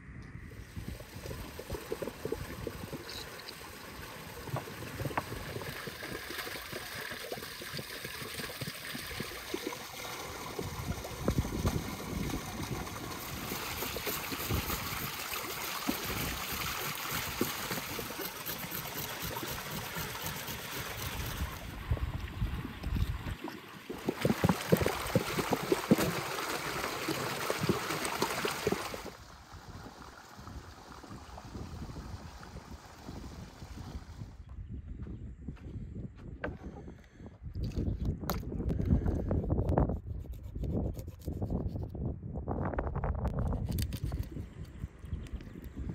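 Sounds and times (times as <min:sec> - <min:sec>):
water pouring into stone basin: 0:00.7 - 0:33.2.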